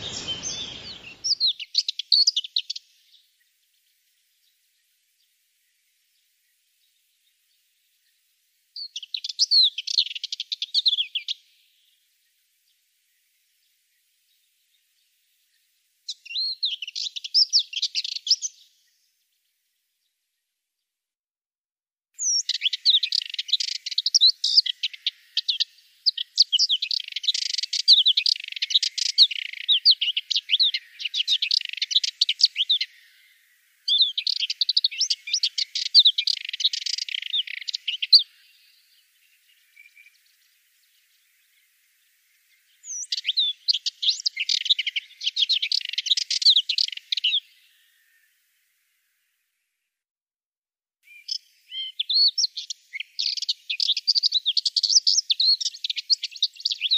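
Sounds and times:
bird warbling song: 0.0s - 3.2s, 22.2s - 48.3s, 51.1s - 56.9s.

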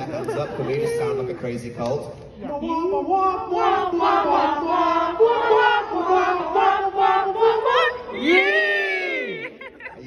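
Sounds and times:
audience chanting in unison: 3.1s - 9.4s.

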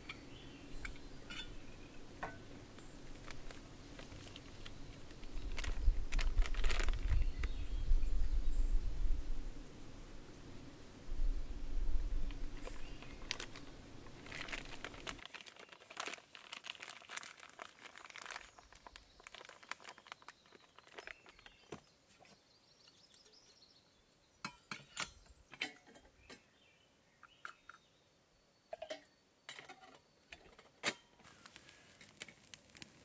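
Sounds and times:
bag crinkling: 2.8s - 7.6s, 12.2s - 21.8s, 31.2s - 33.0s.

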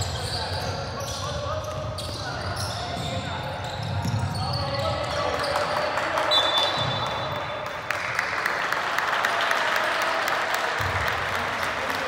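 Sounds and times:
spectators applauding: 5.3s - 12.0s
referee's whistle: 6.2s - 7.4s.

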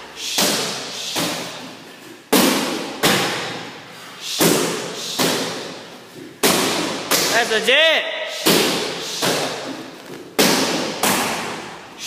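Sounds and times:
kicks smacking a padded mitt: 6.4s - 7.3s, 10.4s - 11.8s.

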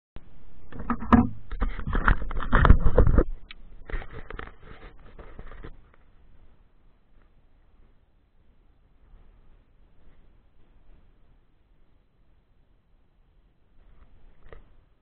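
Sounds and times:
fingers scraping on microphone: 0.5s - 6.1s, 13.8s - 14.8s
small knocks: 0.7s - 5.8s.

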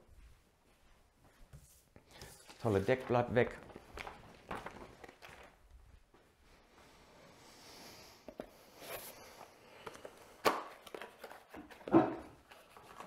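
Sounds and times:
footsteps: 0.0s - 6.9s.

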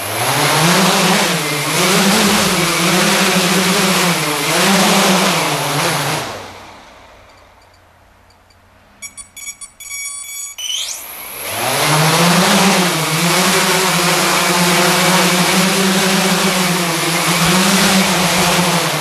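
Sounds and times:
motors whining: 0.0s - 19.0s
propellers droning: 0.0s - 19.0s
short beeps: 7.3s - 11.0s.

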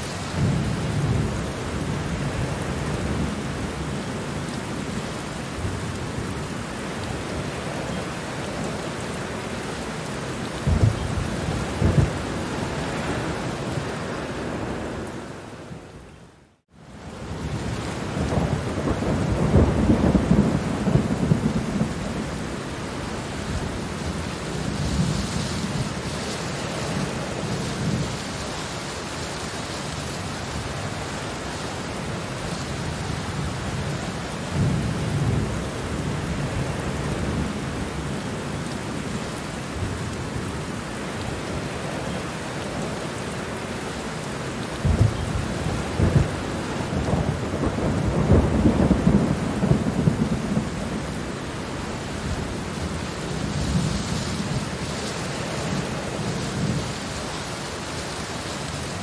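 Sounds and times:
steady rain: 0.0s - 59.0s
thunder rumbling: 10.5s - 15.2s, 17.2s - 28.4s, 44.7s - 57.6s.

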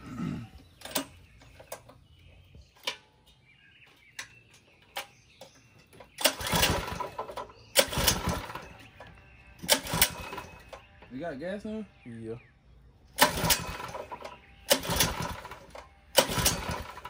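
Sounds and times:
engine turning over: 0.1s - 2.0s, 5.9s - 11.0s, 13.1s - 17.0s.

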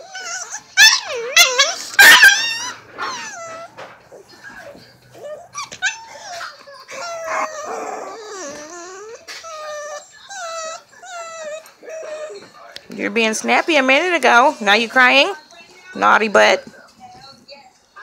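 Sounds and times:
puppy whining: 0.0s - 12.8s.

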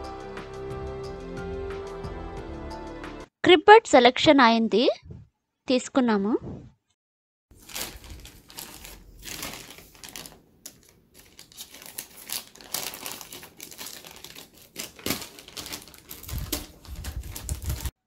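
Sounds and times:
plastic wrapping crinkling: 7.5s - 18.0s.

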